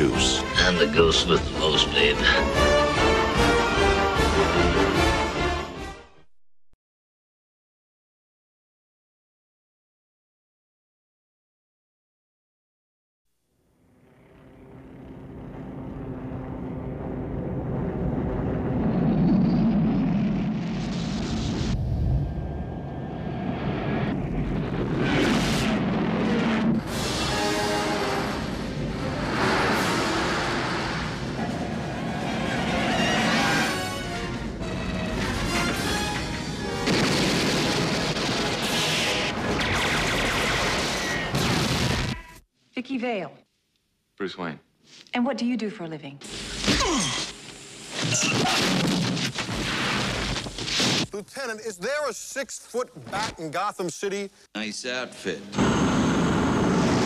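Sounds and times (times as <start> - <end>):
film trailer music: 0.0 - 6.3, 23.5 - 40.9
jet engine rumble: 14.3 - 25.0
booms and crashes: 36.6 - 42.3, 48.0 - 51.2.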